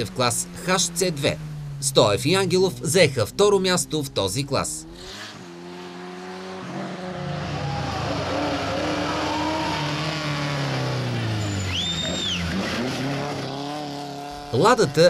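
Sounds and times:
rally car engine revving: 0.0s - 15.0s
tyres squealing: 11.1s - 12.8s.

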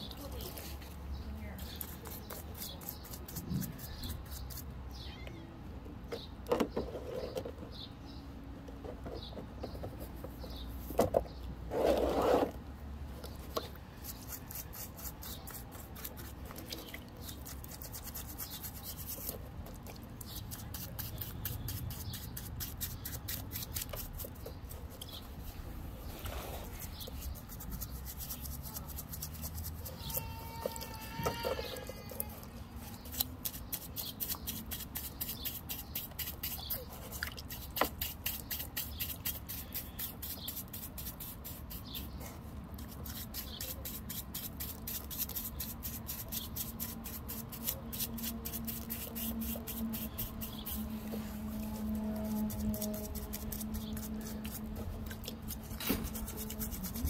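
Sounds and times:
brush scrubbing wet rock: 1.6s - 4.7s, 13.3s - 25.2s, 26.1s - 31.1s, 32.8s - 57.0s
brush swishing in water: 42.8s - 57.0s.

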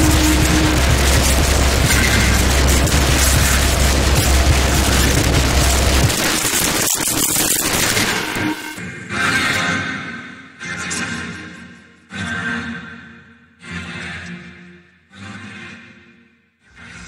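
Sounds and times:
heavy low bass drone: 0.0s - 8.8s
harsh distorted noise music: 0.0s - 11.5s.

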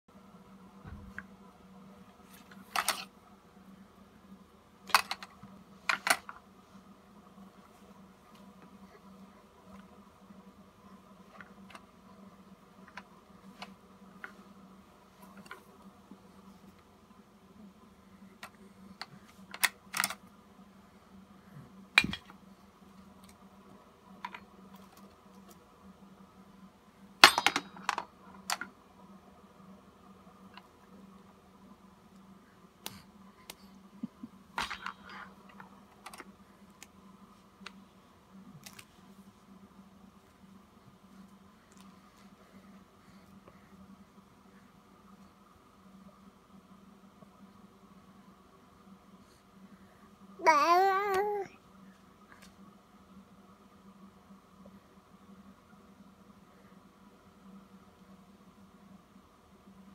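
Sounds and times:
low steady hum: 0.1s - 59.9s.

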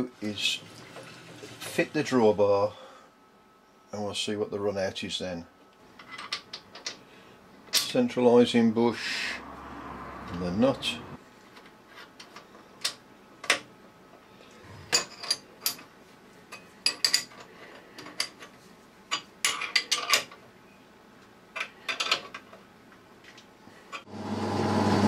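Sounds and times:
lathe motor humming: 24.1s - 25.0s.

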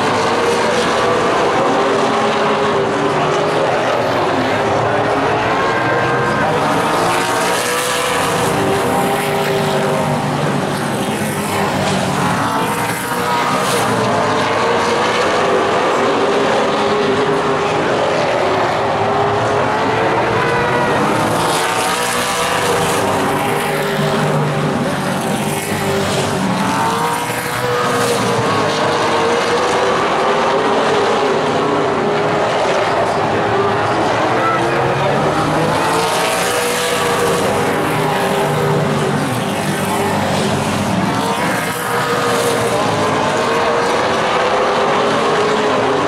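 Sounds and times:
stock cars racing: 0.0s - 46.0s.

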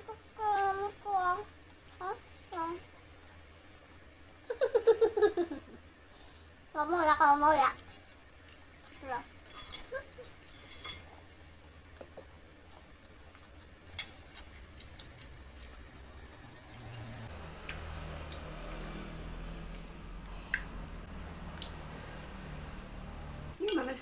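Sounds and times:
wet chewing and lip smacks: 11.9s - 21.9s.

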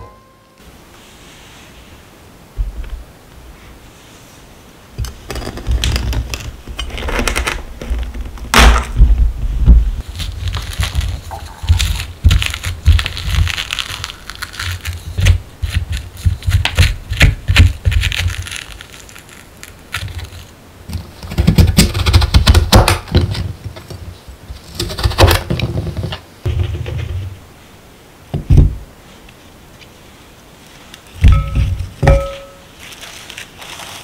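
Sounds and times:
squash piece knocking down: 5.0s - 9.3s, 31.2s - 32.7s
spoon scraping squash: 10.0s - 22.4s.

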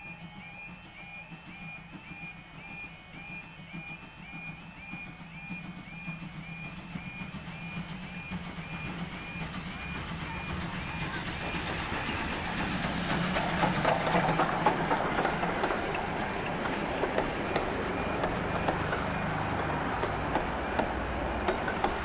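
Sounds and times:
steam train passing: 0.0s - 22.0s
wheels clattering over rail joints: 8.4s - 22.0s.

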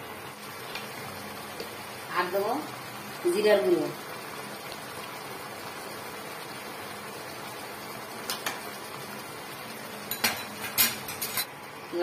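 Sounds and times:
gravy bubbling in a pot: 0.0s - 12.0s.

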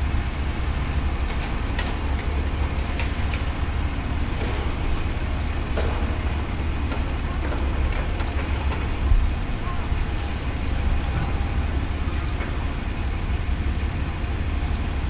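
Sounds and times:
excavator diesel engine drone: 0.0s - 15.0s.

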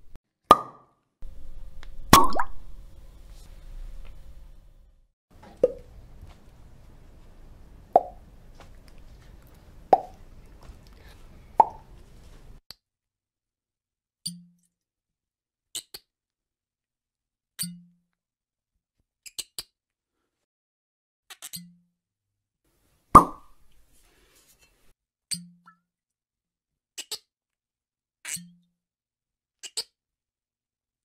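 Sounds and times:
corks popping from bottles: 23.2s - 23.5s.

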